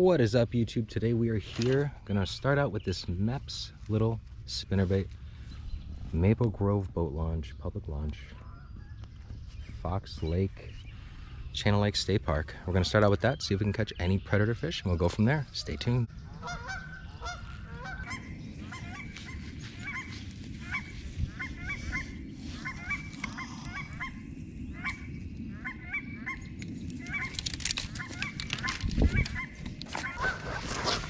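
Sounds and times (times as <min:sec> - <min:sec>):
steady low rumble: 0:00.0 - 0:31.0
geese honking: 0:15.5 - 0:31.0.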